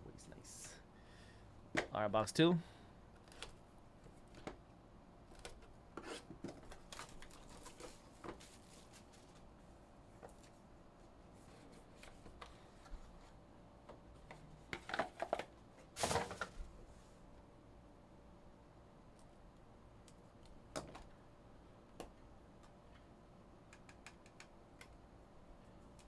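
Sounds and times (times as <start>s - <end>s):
plastic crinkling and rustling: 6.5s - 9.5s.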